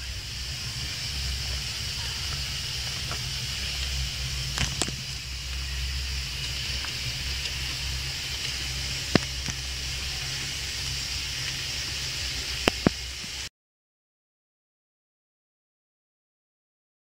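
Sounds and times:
background hiss: 0.0 - 13.5
low hum: 0.0 - 13.5.

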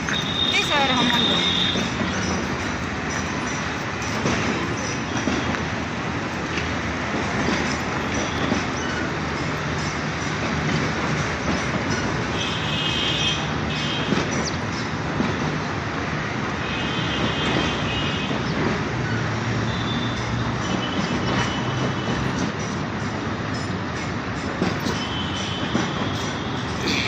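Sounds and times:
train wheels rumbling on track: 0.0 - 27.0
wheel squeals: 7.4 - 10.8.

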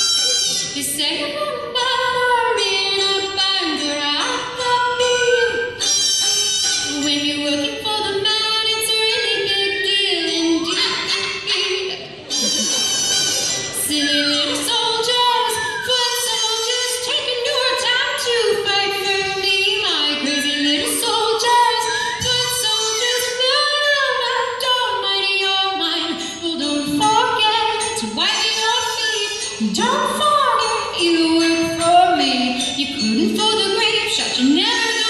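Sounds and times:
buzzy hand-held mouth instruments: 0.0 - 0.8, 4.2 - 7.7, 9.1 - 17.6.

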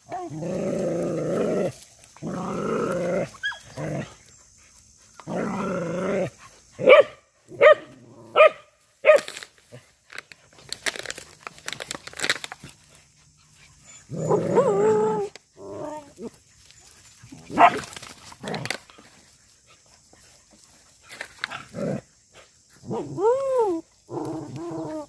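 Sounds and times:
dogs growling: 0.0 - 4.4, 5.2 - 6.9, 13.5 - 16.4, 21.4 - 22.2, 22.8 - 25.0
rustling in dry leaves: 0.0 - 25.0
dogs barking: 6.8 - 9.3, 17.5 - 17.9.

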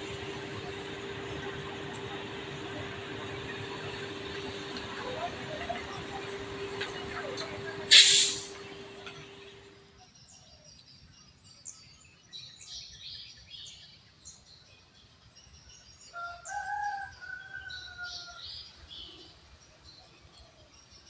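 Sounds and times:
rooster crowing: 16.2 - 18.5.

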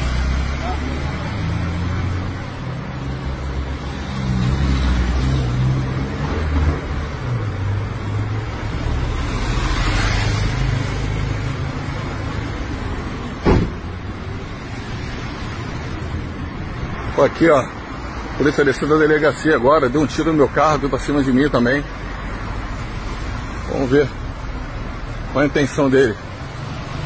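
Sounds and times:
sharp bang: 13.4 - 13.9.

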